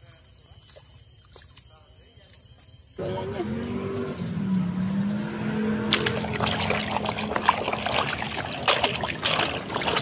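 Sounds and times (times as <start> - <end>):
toys splashing in water: 5.8 - 10.0.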